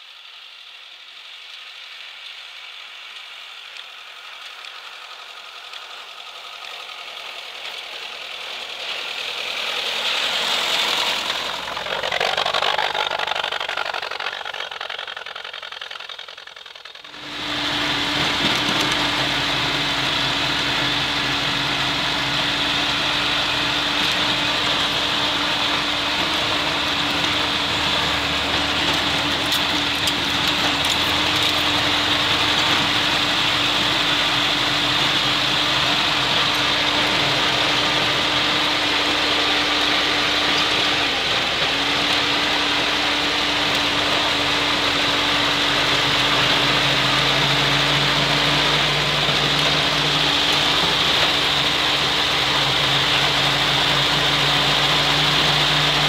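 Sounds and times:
vehicle engine droning with whine: 0.0 - 56.0
lower hum: 10.1 - 30.9.

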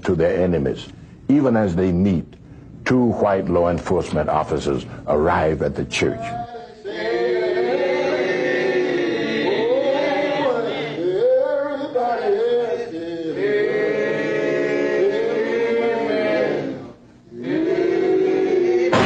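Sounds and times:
men singing a hymn: 6.2 - 19.0.

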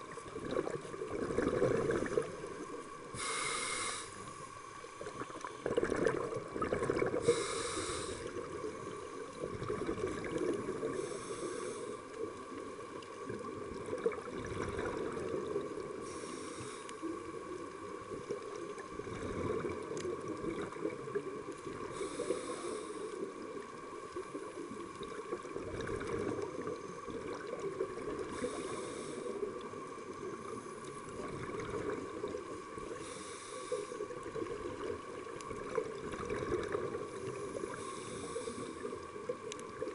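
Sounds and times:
underwater rumble: 0.0 - 39.9
scuba regulator breath hiss: 3.1 - 4.6, 7.1 - 9.2, 10.8 - 12.2, 16.0 - 17.2, 21.8 - 23.3, 28.2 - 29.5, 32.8 - 34.2, 37.4 - 39.0.

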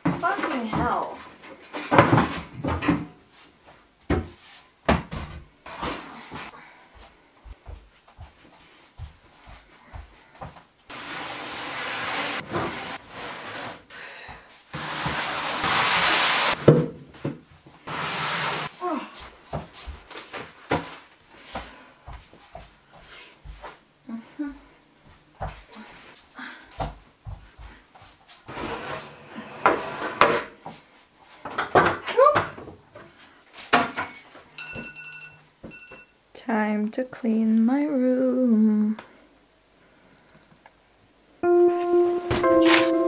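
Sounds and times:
cabinet scraping on wooden floor: 10.9 - 13.9, 14.8 - 16.7, 17.8 - 18.7, 28.5 - 30.6.

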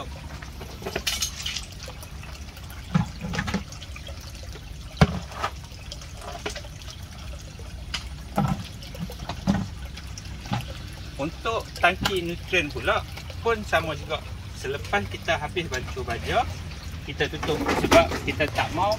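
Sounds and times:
plastic bucket set down: 2.9 - 3.7, 5.0 - 5.6, 8.3 - 9.7, 17.4 - 18.4.

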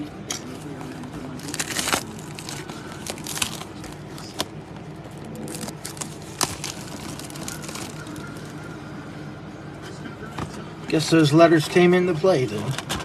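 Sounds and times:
low background hum: 0.0 - 13.0
plastic wrap crinkling: 0.3 - 8.6.

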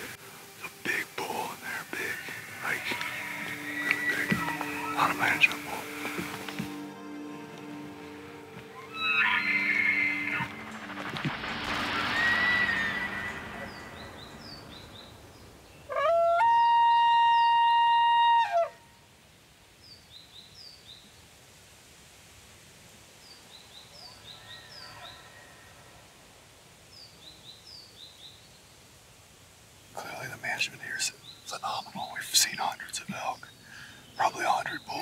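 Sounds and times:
elk bugling: 1.7 - 14.0, 15.9 - 18.8.

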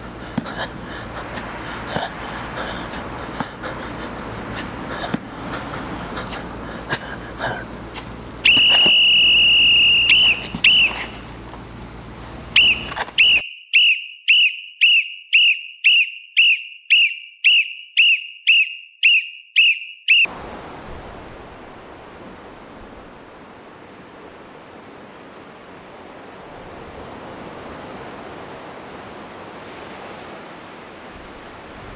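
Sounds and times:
steady rushing noise: 0.0 - 13.2, 20.3 - 31.9
high whistle tone: 8.4 - 11.1, 12.6 - 20.3
short blips: 8.4 - 11.2, 12.6 - 20.3
short curving whistle notes: 8.5 - 11.1, 12.6 - 20.3.

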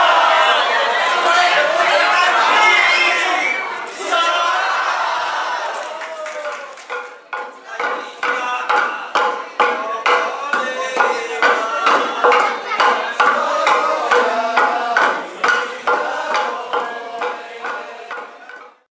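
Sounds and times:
wooden pestles pounding rice: 6.4 - 18.9.

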